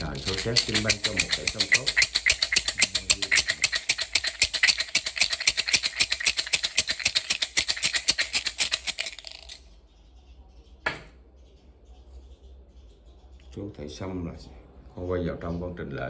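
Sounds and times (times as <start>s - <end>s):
bamboo sticks rattling in a cup: 0.0s - 9.7s.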